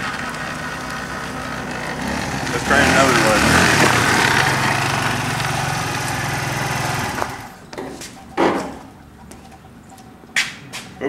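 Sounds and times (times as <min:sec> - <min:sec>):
scooter engine running: 0:00.0 - 0:07.8.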